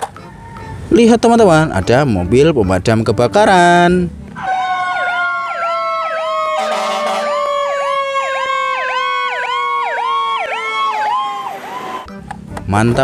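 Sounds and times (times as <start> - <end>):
siren wailing: 4.4 - 12.1
siren yelping: 4.4 - 12.1
horn blast: 6.5 - 7.5.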